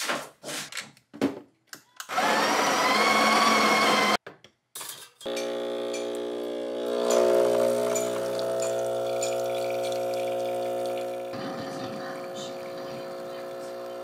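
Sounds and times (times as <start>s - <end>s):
espresso machine pump humming: 5.3s - 14.0s.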